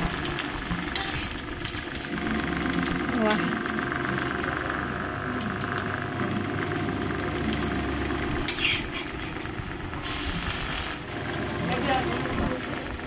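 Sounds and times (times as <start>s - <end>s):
food sizzling in oil: 0.0s - 4.5s, 10.0s - 12.3s.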